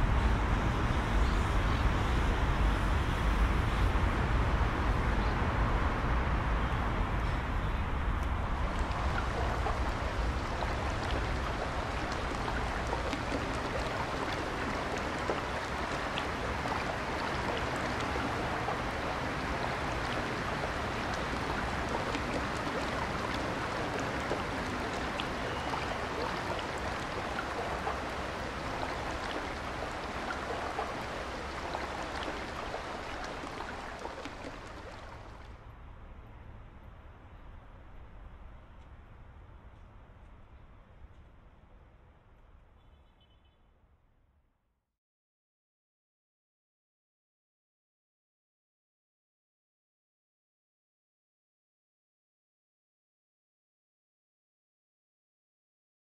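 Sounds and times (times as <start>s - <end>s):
water trickling and splashing: 8.2s - 35.6s.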